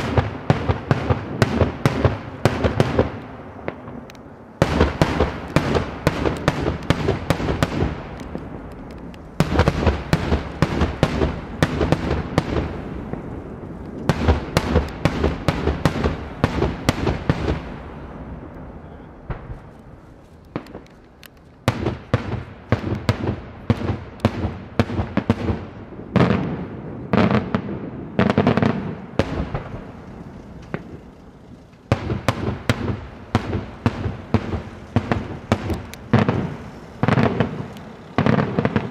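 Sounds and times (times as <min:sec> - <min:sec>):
fireworks bangs: 0:00.0 - 0:38.9.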